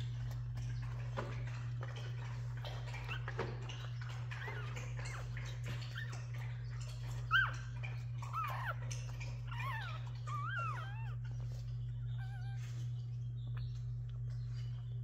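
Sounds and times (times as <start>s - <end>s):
puppies squeaking and whimpering: 0.0s - 15.0s
steady low hum: 0.0s - 15.0s.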